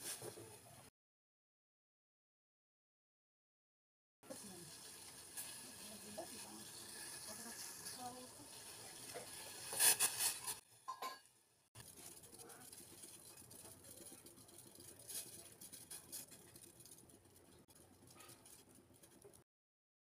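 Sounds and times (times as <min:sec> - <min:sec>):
tea simmering bubbles: 0:04.3 - 0:11.0, 0:11.8 - 0:19.4.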